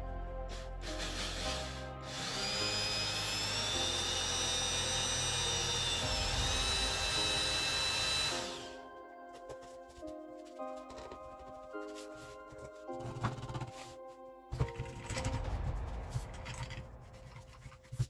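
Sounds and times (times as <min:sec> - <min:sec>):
background music: 0:00.0 - 0:18.0
cordless drill whining: 0:01.0 - 0:08.8.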